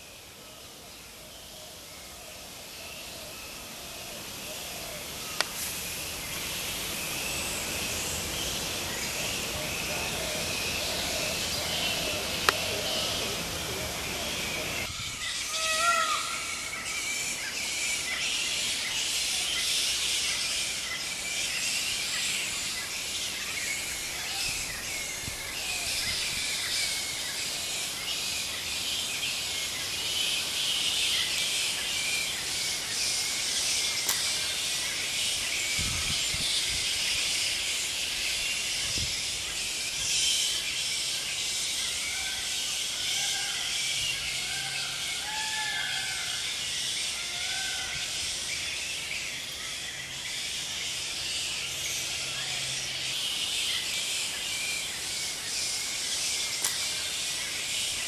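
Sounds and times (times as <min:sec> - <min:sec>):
constant high hiss: 0:00.0 - 0:58.0.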